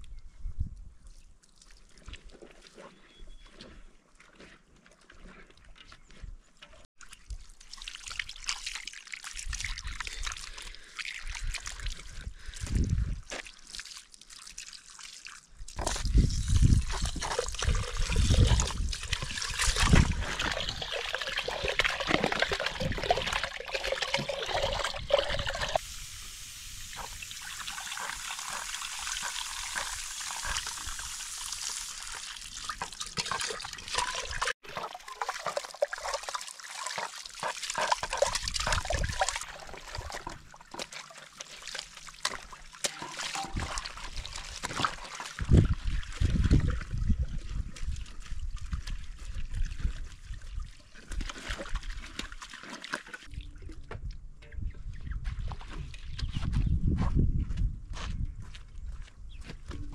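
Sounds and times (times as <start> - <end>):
water running from a hose: 13.6 - 47.7.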